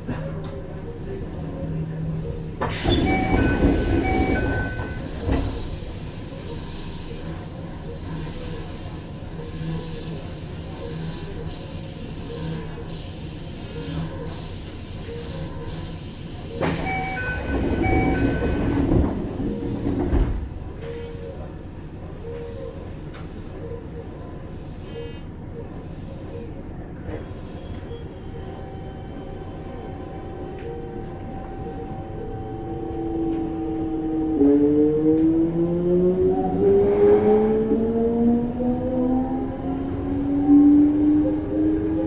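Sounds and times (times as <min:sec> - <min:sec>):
train doors sliding shut with hiss: 0:02.6 - 0:05.8, 0:15.9 - 0:20.5
two-tone door chime: 0:03.0 - 0:05.0, 0:16.8 - 0:18.7.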